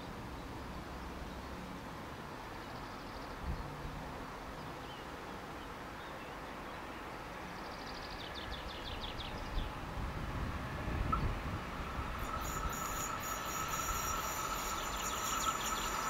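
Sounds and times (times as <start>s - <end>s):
songbird singing: 2.5s - 3.8s, 4.5s - 9.8s, 11.0s - 16.0s
distant train rumble: 8.2s - 16.0s.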